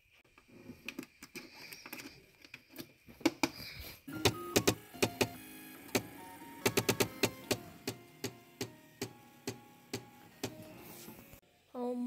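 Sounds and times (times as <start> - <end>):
clicks and handling noise: 0.3 - 11.4
stepper motors playing a tune: 4.1 - 11.4
loud sharp clicks: 4.2 - 10.6.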